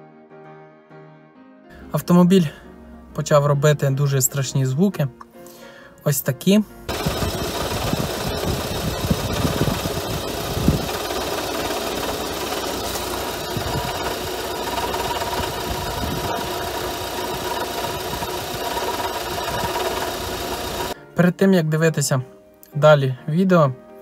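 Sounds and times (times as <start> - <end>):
diesel engine idling: 6.9 - 21.0
engine knocking and rattling: 6.9 - 21.0
steady whine: 6.9 - 21.0.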